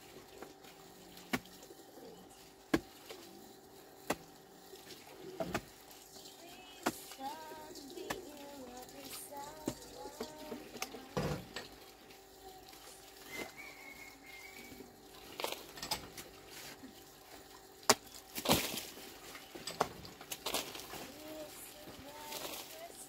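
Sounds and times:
dove cooing: 0:01.6 - 0:02.4.

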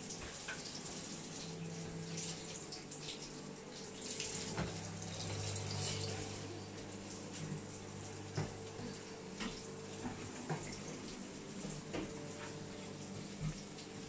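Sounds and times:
tap running into a sink: 0:00.0 - 0:06.3, 0:08.3 - 0:12.7
steady hum: 0:00.0 - 0:14.0.

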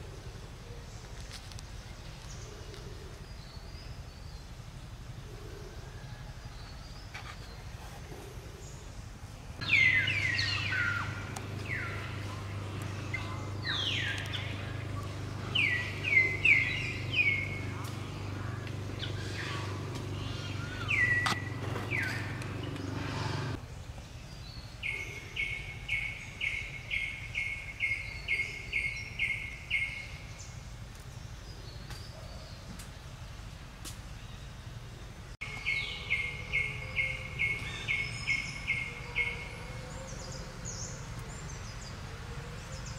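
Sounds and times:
steady low hum: 0:00.0 - 0:32.0
birds chirping: 0:00.0 - 0:42.9
faint outdoor background noise: 0:00.0 - 0:42.9.

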